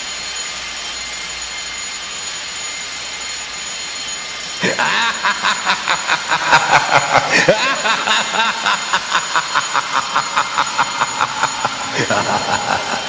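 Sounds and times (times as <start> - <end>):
alarm bell ringing: 0.0 - 13.0.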